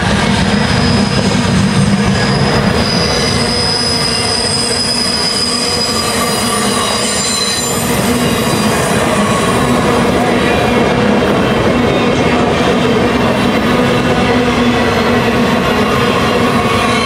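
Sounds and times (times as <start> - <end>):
train wheels rumbling on rail: 0.0 - 17.0
high wheel squeal: 0.5 - 10.0, 15.7 - 17.0.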